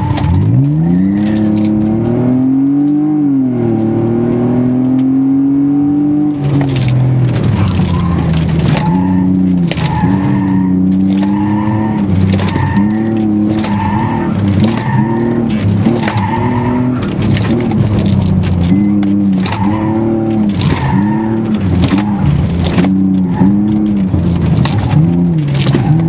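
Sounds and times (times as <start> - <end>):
car engine revving: 0.0 - 26.0
tyres squealing: 7.4 - 26.0.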